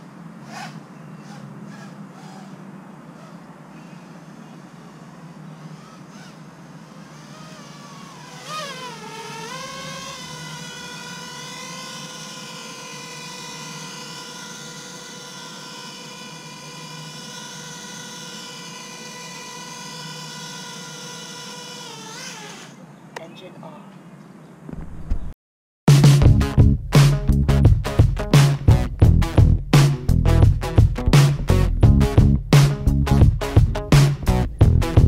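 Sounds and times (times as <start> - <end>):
quadcopter motors whining: 0.0 - 23.0.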